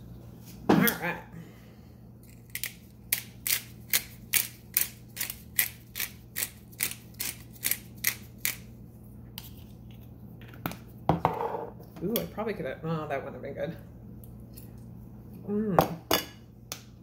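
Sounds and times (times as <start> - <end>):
pepper grinder grinding: 2.2 - 8.7.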